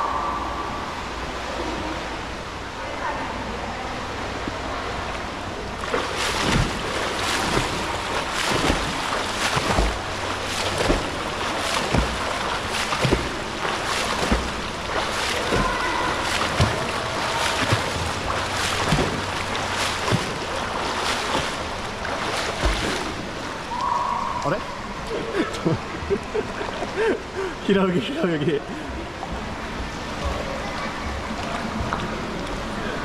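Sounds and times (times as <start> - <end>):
swimmer splashing in a pool: 4.0 - 33.0.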